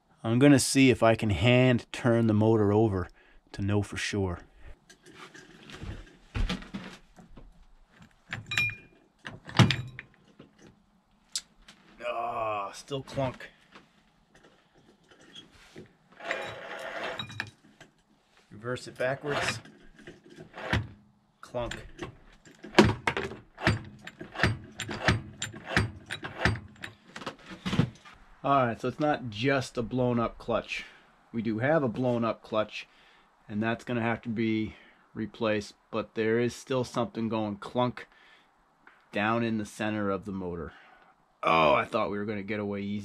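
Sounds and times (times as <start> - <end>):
ringing metal clink: 8.5 - 8.9.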